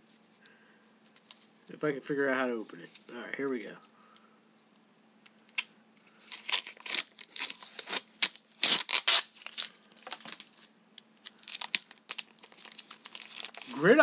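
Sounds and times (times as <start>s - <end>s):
plastic wrapper tearing and crinkling: 5.5s - 14.0s.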